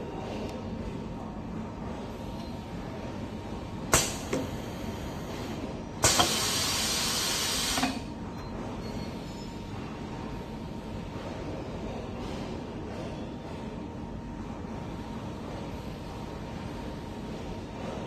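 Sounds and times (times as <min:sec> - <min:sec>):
low machine hum: 0:00.0 - 0:18.0
pneumatic clack with hiss: 0:03.9 - 0:04.7, 0:06.0 - 0:08.1
loud compressed air hiss: 0:06.0 - 0:08.0.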